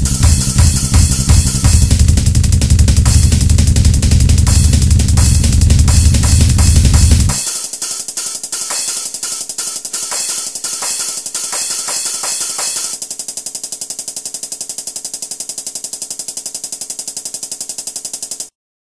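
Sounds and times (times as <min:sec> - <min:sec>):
drum beat background music: 0:00.0 - 0:18.5
fast ticking rhythm: 0:00.0 - 0:18.5.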